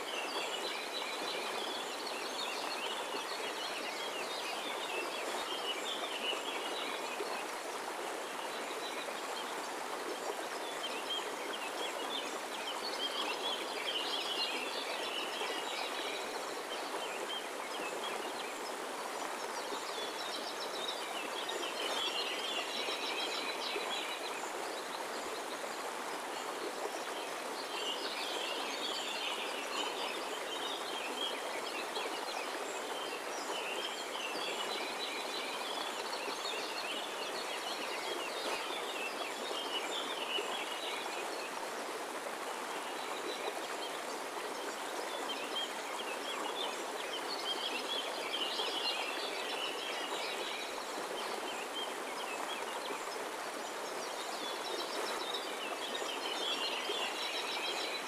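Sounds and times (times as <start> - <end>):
stream rippling over rocks: 0.0 - 58.0.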